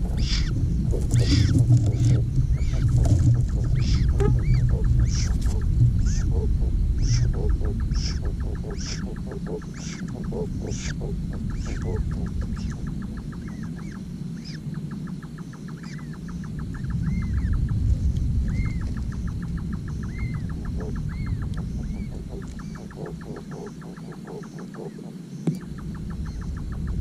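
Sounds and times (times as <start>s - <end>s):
steady low rumble: 0.0s - 27.0s
fast ticking animal trill: 0.2s - 5.3s.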